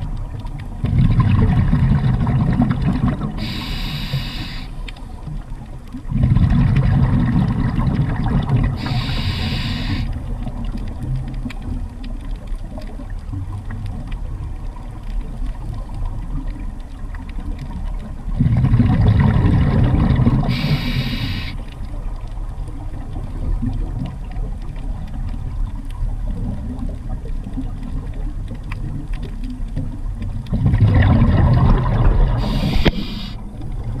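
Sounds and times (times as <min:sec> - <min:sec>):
exhaled bubbles: 0:00.0 - 0:34.0
underwater rumble: 0:00.0 - 0:34.0
regulator air hiss: 0:03.4 - 0:04.8, 0:08.8 - 0:10.2, 0:20.5 - 0:21.6, 0:32.4 - 0:33.4.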